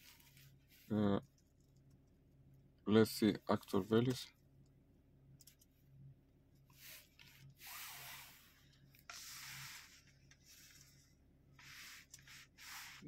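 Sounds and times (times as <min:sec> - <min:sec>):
faint low hum: 0:00.0 - 0:12.5
soft hissing breaths: 0:06.7 - 0:13.0.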